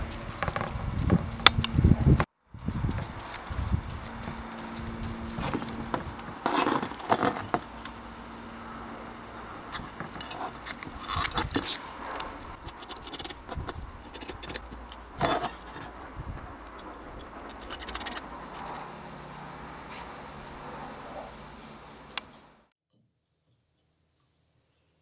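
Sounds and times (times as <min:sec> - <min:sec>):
tape rubbed on metal scraping: 0:00.0 - 0:01.9, 0:03.2 - 0:08.0, 0:09.6 - 0:19.0.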